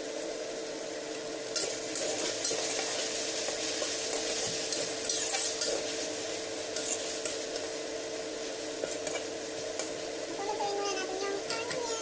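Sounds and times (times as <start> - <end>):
meat sizzling in hot oil: 0.0 - 12.0
metal spatula scraping wok: 1.6 - 7.6.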